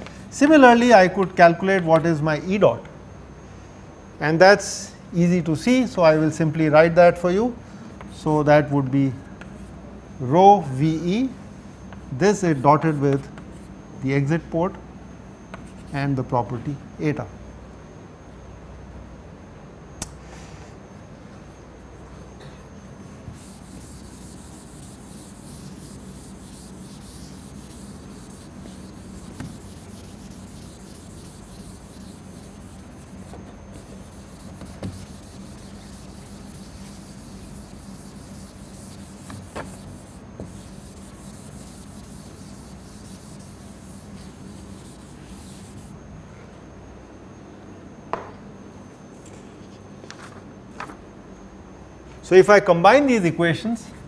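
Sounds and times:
eraser scrubbing a chalkboard: 12.2s - 13.8s, 15.6s - 16.0s, 23.3s - 46.0s.

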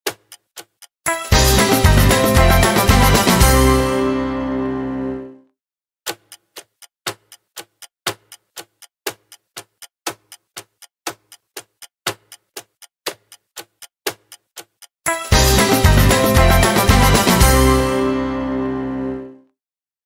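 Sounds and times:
countdown timer ticking: 0.1s - 4.5s, 6.1s - 19.2s
music: 1.1s - 5.5s, 15.1s - 19.6s.

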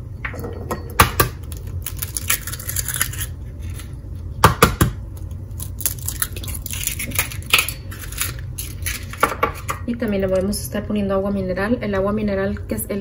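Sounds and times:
eggs cracking into bowl: 0.2s - 10.5s.

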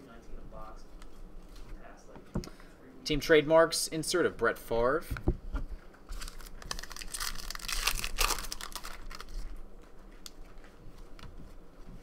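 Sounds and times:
cards rustling: 6.1s - 11.1s.

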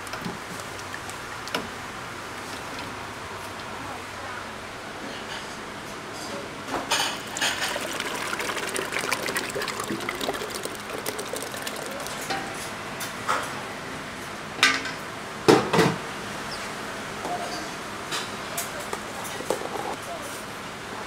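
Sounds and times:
thick sauce pouring into metal container: 7.2s - 12.7s.

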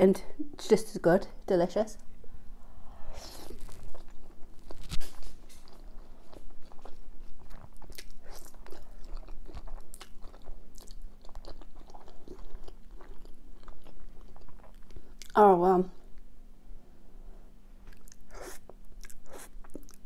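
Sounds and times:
chewing mouth smacks: 3.4s - 15.4s, 17.8s - 20.0s.

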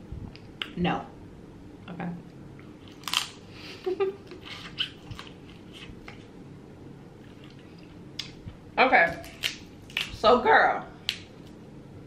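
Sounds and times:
low steady hum: 0.0s - 12.0s
wet mouth smacks of eating: 8.2s - 8.4s.

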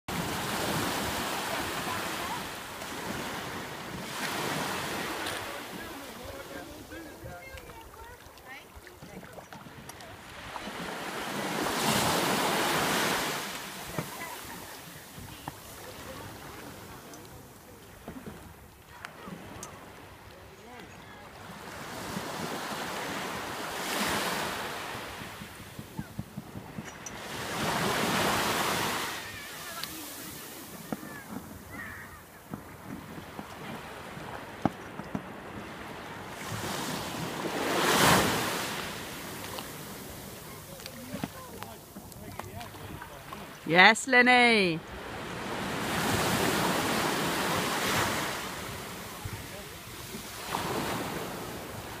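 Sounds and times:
small waves breaking on shore: 0.1s - 52.0s
wind on microphone: 25.1s - 28.9s.

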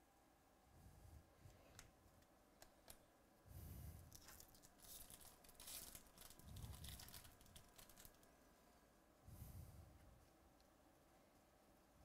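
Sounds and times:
light clicks of cards: 1.5s - 3.0s
foil wrapper tearing and crinkling: 4.1s - 8.3s.

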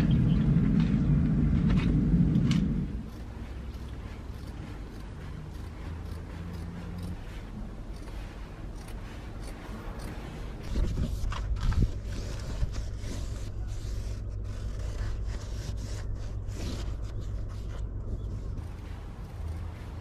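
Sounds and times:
low rumble: 0.0s - 7.9s, 10.6s - 20.0s
felt sheet scraping and rustling: 8.2s - 20.0s.

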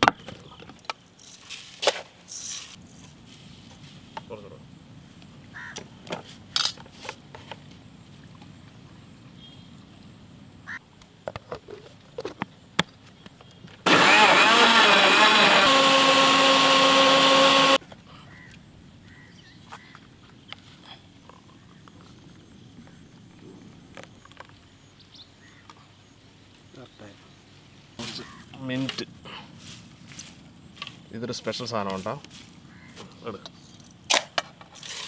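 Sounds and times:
blender whining: 13.9s - 17.8s.

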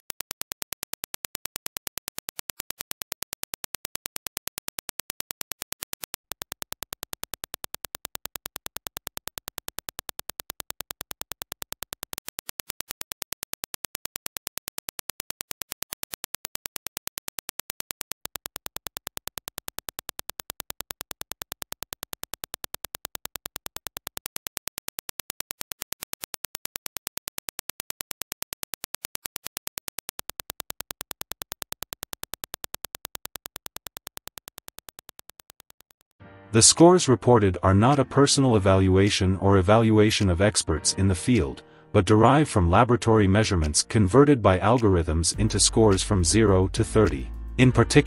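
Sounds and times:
sharp clicks: 0.0s - 36.2s.

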